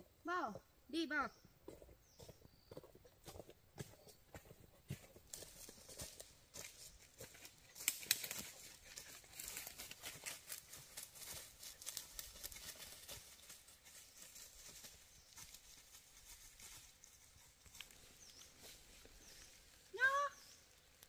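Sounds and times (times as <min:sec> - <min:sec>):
dry leaves crunching underfoot: 0:05.3 - 0:21.0.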